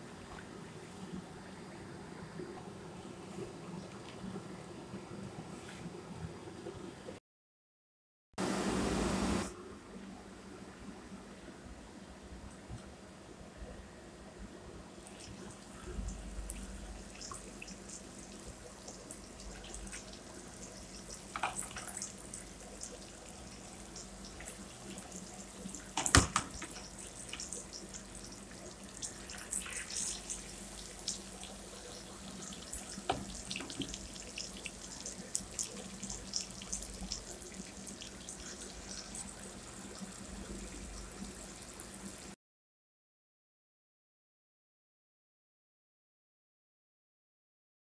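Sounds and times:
fish sizzling in hot oil: 0:16.5 - 0:40.4.

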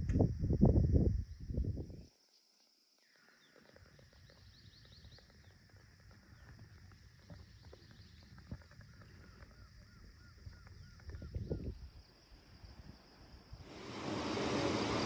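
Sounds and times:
steady high-pitched hiss: 0:00.0 - 0:15.0
faint chirps: 0:01.3 - 0:12.4.

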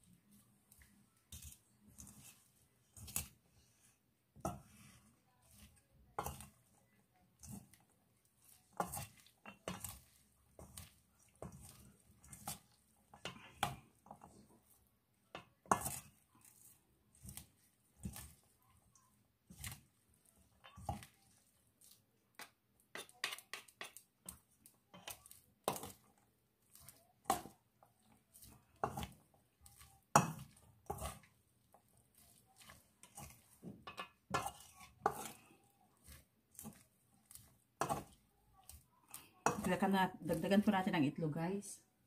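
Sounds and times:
utensils scraping metal bowl: 0:07.4 - 0:14.5, 0:15.4 - 0:18.5, 0:22.9 - 0:40.8.

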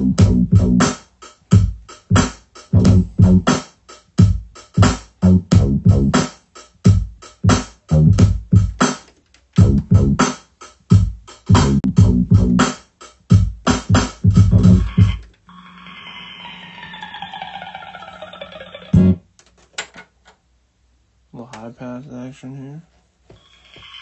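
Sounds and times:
sample stabs with heavy bass: 0:00.0 - 0:06.3, 0:06.9 - 0:08.8, 0:09.6 - 0:15.2, 0:19.0 - 0:19.2.

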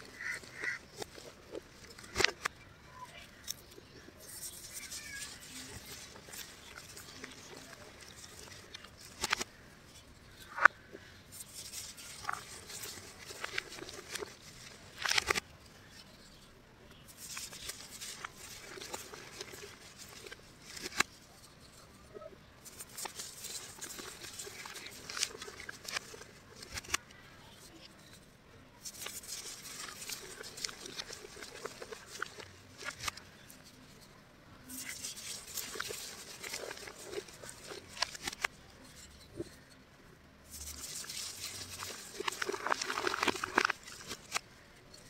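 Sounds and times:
powder crunching in hands: 0:40.5 - 0:44.4.

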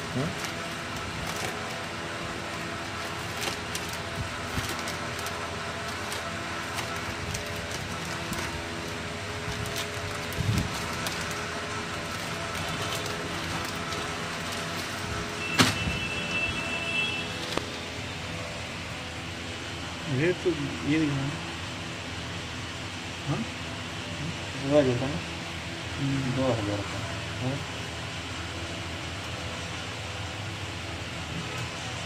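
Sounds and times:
plastic bag crinkling: 0:00.0 - 0:18.2
steady hum: 0:00.0 - 0:32.0.

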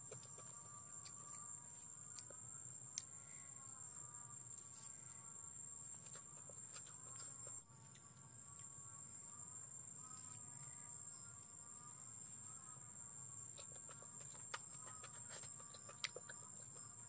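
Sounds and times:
eating clicks and mouth smacks: 0:13.6 - 0:16.8.

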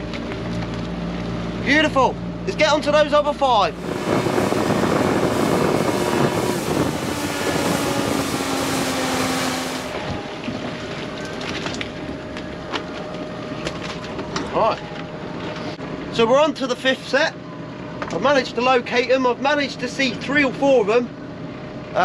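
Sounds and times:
outboard motor running: 0:00.0 - 0:15.8
water rushing past hull: 0:03.7 - 0:12.0
wind on microphone: 0:03.8 - 0:10.8.

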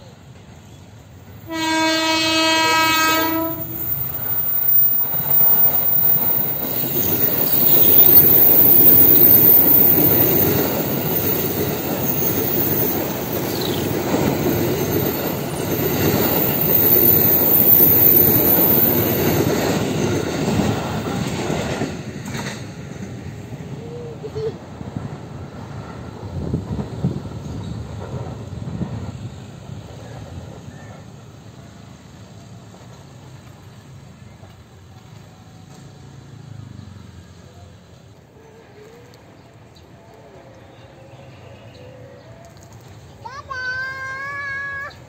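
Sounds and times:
train wheels rumbling and clattering: 0:00.2 - 0:38.3
train horn: 0:01.4 - 0:04.0
high wheel squeals: 0:03.2 - 0:19.6.

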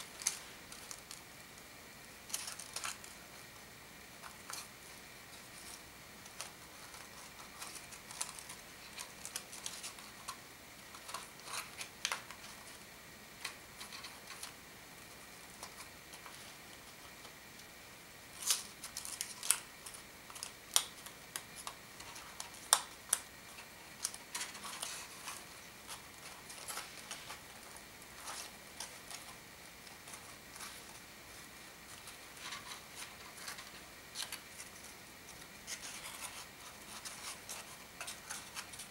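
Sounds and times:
paper crinkling and rustling: 0:02.3 - 0:03.2, 0:04.2 - 0:12.8, 0:18.3 - 0:38.9.

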